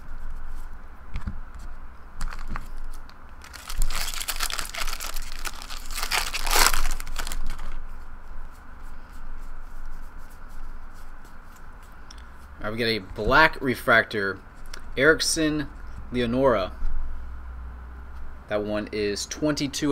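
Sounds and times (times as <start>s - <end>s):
foil wrapper tearing and crinkling: 2.2s - 7.8s.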